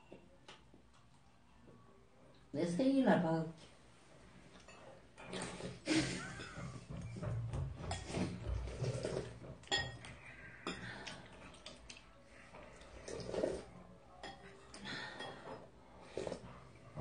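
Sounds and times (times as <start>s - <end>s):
spoons clinking on ceramic bowls: 9.6s - 10.9s, 14.2s - 15.6s.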